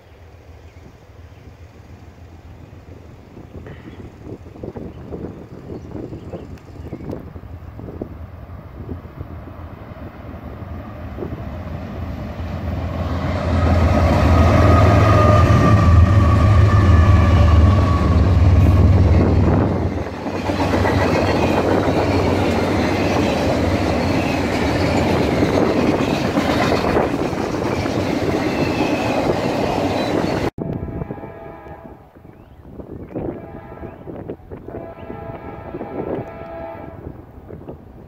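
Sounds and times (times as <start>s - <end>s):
diesel locomotive drone: 0.0s - 38.0s
freight cars rumbling and clattering: 17.5s - 30.6s.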